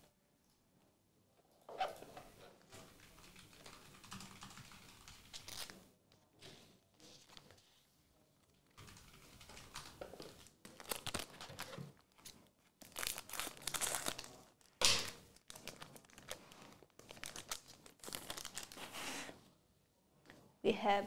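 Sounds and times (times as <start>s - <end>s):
foil wrapper crinkling and tearing: 10.7s - 19.1s.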